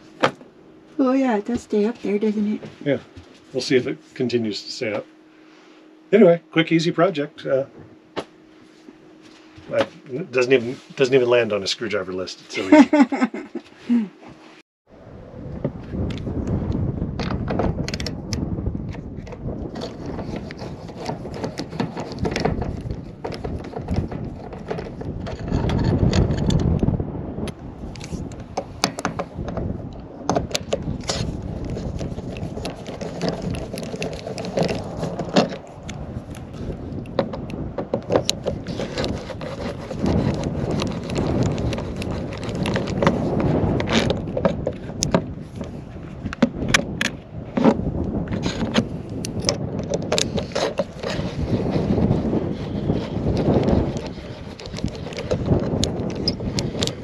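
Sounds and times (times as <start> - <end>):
wind on microphone: 14.9 - 57.0.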